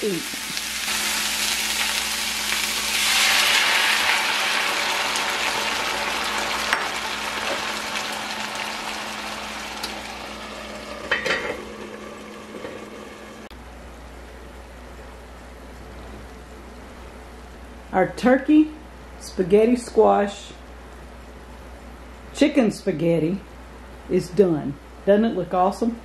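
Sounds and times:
vegetables sizzling in a skillet: 0.0 - 13.5.

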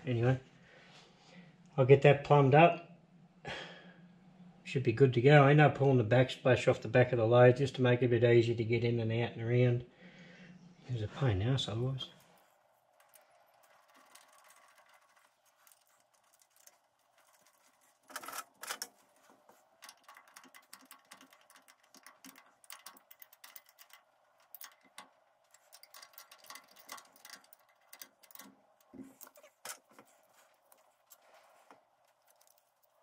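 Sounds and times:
metal clatters: 12.2 - 33.0
metallic clicks of spanner: 19.8 - 31.2.

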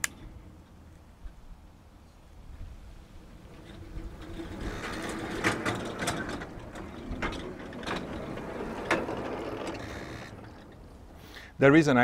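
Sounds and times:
wheels clicking over rail joints: 2.1 - 12.0
miniature electric locomotive running: 2.6 - 11.5.

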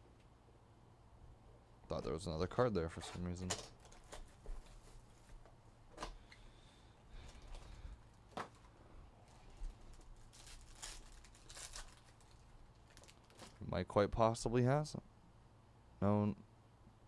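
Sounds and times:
foil wrapper tearing and crinkling: 9.7 - 13.6.

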